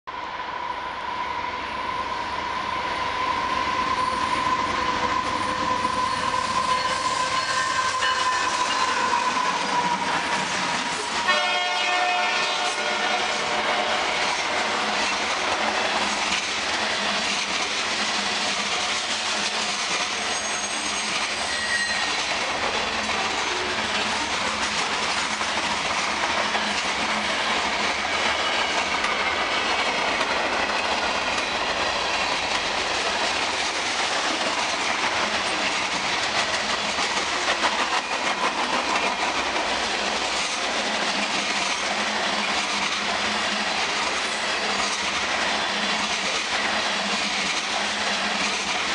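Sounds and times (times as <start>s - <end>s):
train wheels rushing on rails: 0.2s - 48.9s
faint high squeal: 1.3s - 10.2s, 20.2s - 22.2s.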